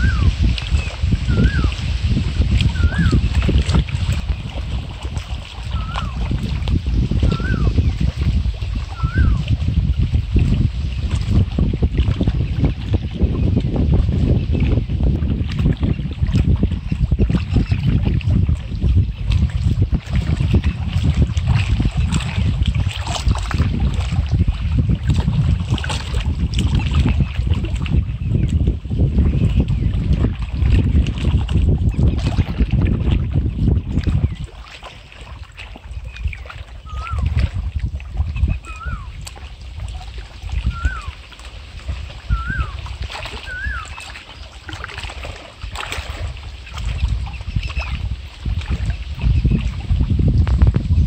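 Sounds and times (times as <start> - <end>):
bird whistled call: 0.0 - 1.8, 2.7 - 3.3, 5.7 - 6.2, 7.2 - 8.0, 8.9 - 9.5, 36.8 - 37.4, 38.4 - 39.2, 40.6 - 41.2, 42.3 - 44.2
waves lapping against rocks: 0.0 - 51.0
wind buffeting microphone: 0.0 - 51.0.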